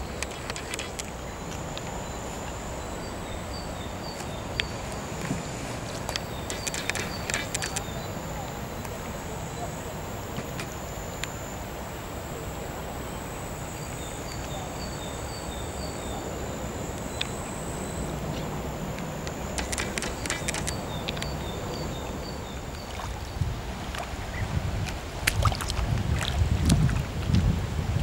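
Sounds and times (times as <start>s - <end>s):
flurry of clicks: 0.0s - 23.1s
high-pitched insect drone: 0.0s - 26.6s
steady outdoor hiss: 0.0s - 28.0s.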